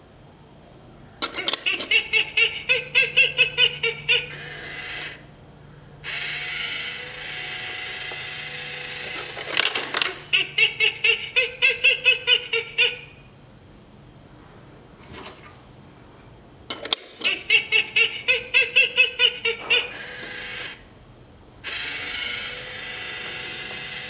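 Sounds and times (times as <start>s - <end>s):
small motor whirring: 4.3s - 5.3s, 6.0s - 9.8s, 19.7s - 20.8s, 21.6s - 24.0s.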